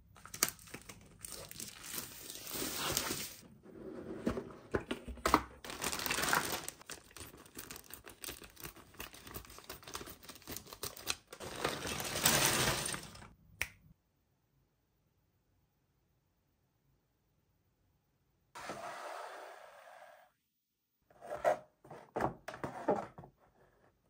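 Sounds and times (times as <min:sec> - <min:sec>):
packaging crinkling and tearing: 0:00.2 - 0:03.4, 0:05.6 - 0:13.3.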